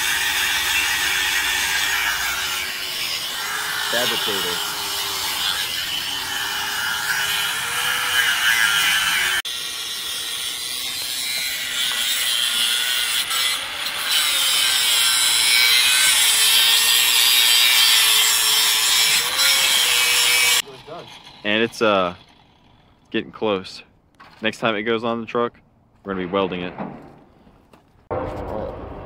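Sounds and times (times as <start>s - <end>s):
angle grinder cutting metal: 0.0s - 23.0s.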